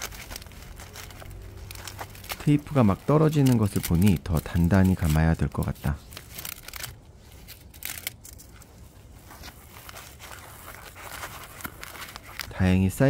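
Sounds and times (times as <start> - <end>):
foil insulation crinkling: 0.0 - 13.0.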